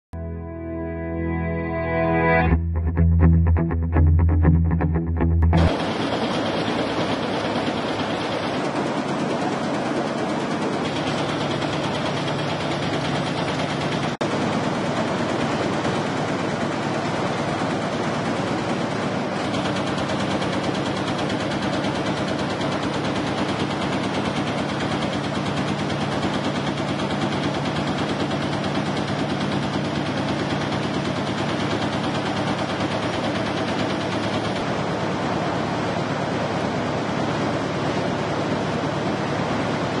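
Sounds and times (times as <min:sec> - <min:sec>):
steady machine hum: 0:00.2 - 0:40.0
press punching sheet metal: 0:17.7 - 0:34.8.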